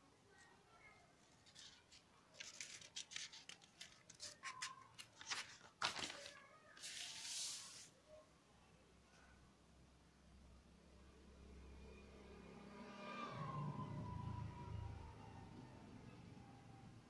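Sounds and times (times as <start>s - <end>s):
paper pages crackling: 1.2s - 7.9s
page flipping rustle: 1.4s - 7.9s.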